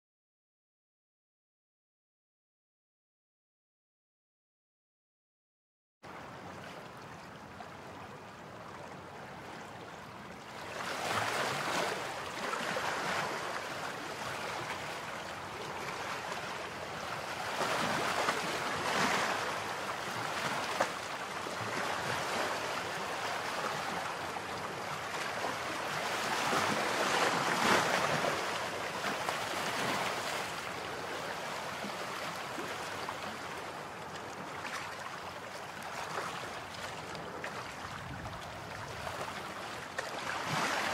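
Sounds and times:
sea surf breaking on beach: 10.7s - 33.7s, 40.0s - 40.9s.

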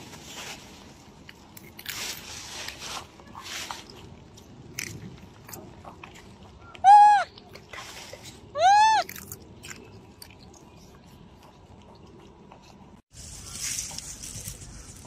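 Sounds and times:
baby monkey crying: 6.8s - 7.3s, 8.6s - 9.1s.

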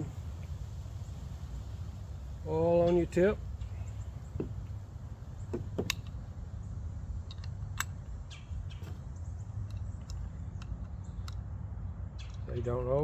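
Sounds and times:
steady low rumble: 0.0s - 13.0s
faint bird chirps: 2.7s - 4.7s
metal clicks and taps: 5.6s - 6.2s, 7.2s - 8.2s, 9.6s - 11.4s.

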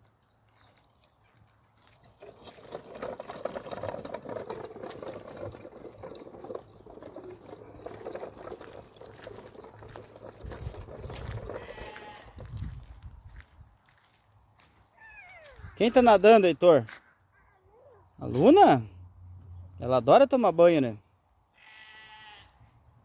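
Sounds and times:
plastic wheels rolling on gravel: 0.0s - 16.8s.

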